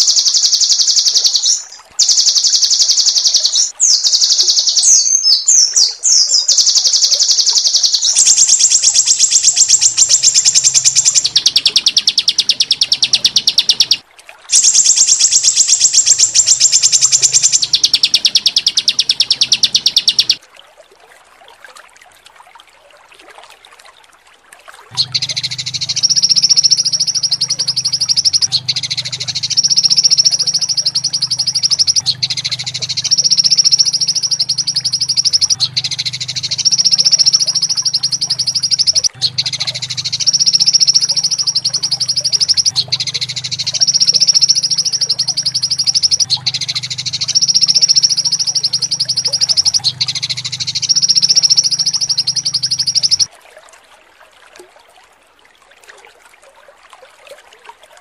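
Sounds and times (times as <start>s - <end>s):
bird high-pitched trills: 0.0s - 20.4s, 25.0s - 53.3s
low buzz: 24.9s - 53.3s.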